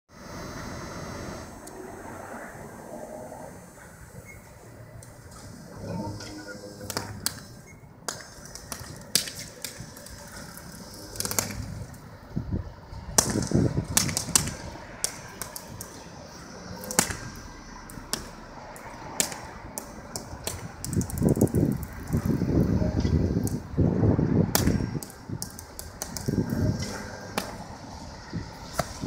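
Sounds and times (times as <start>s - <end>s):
electric arcing cracks and snaps: 6.7s - 12.0s, 13.1s - 22.4s, 23.1s - 23.7s, 24.5s - 27.8s.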